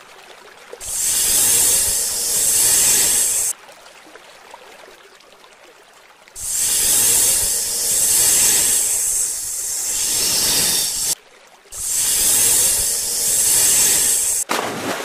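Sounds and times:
snake hissing: 0:00.8 - 0:03.5, 0:06.4 - 0:11.2, 0:11.8 - 0:14.4.

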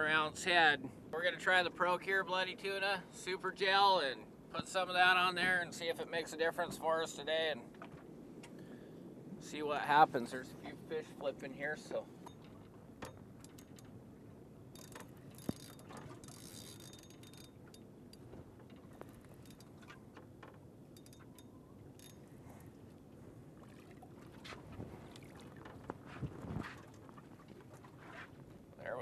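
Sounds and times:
low background hiss: 0:00.0 - 0:24.2
fishing rod being handled: 0:12.2 - 0:14.0, 0:14.7 - 0:22.8, 0:23.7 - 0:28.6
spinning reel clicking and rattling: 0:14.8 - 0:17.6.

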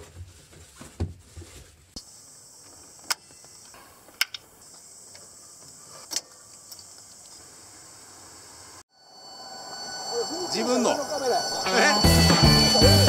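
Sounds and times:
high-pitched electrical whine: 0:08.1 - 0:13.0.

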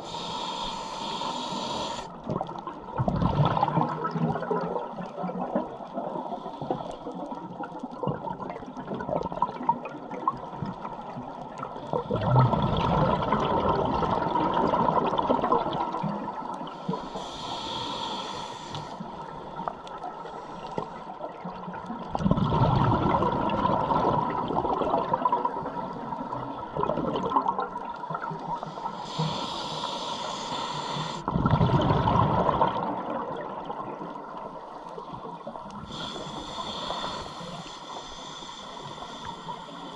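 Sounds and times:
regulator inhalation hiss: 0:00.0 - 0:02.2, 0:16.6 - 0:21.0, 0:28.6 - 0:31.3, 0:35.7 - 0:39.9
gurgling exhaled bubbles: 0:02.2 - 0:06.2, 0:11.8 - 0:16.7, 0:21.3 - 0:28.8, 0:31.2 - 0:34.4.

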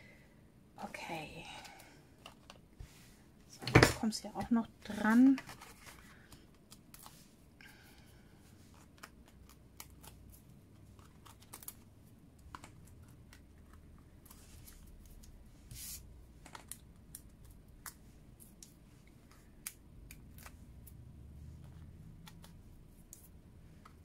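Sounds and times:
paper rustling: 0:04.9 - 0:07.3.

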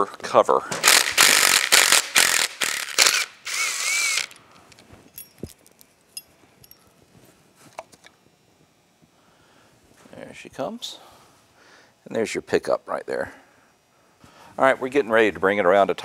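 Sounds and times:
impact wrench whirring: 0:00.8 - 0:04.4.

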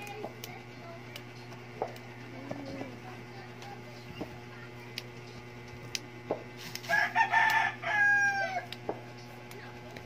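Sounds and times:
rooster crowing: 0:06.8 - 0:08.7.

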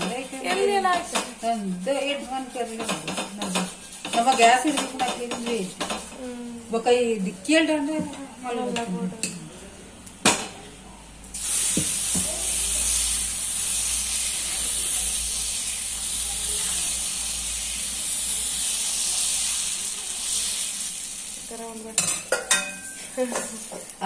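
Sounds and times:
batter sizzling on hot griddle: 0:00.0 - 0:06.3, 0:11.3 - 0:24.0.

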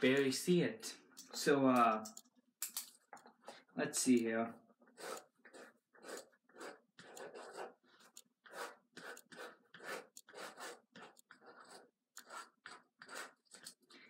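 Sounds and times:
pen scratching on paper: 0:04.9 - 0:14.0.

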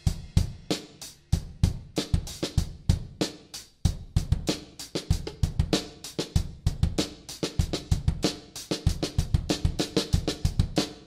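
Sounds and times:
cymbals: 0:00.0 - 0:02.6
drum kit playing: 0:00.0 - 0:11.0.

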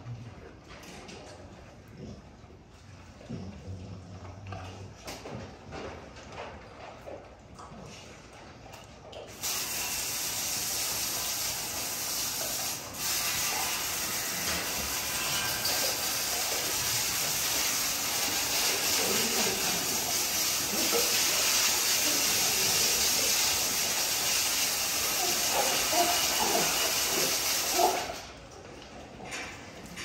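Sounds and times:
steady hissing noise: 0:09.4 - 0:28.3.

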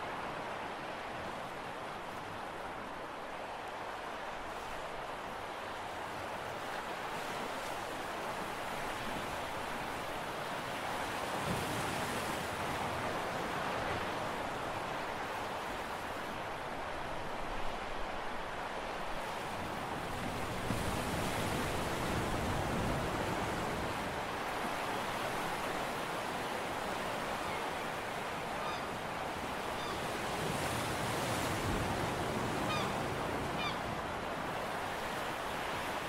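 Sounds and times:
sea waves rushing: 0:00.0 - 0:36.0
faint high bird calls: 0:28.6 - 0:29.0, 0:29.7 - 0:30.2, 0:32.6 - 0:33.0, 0:33.6 - 0:33.9.

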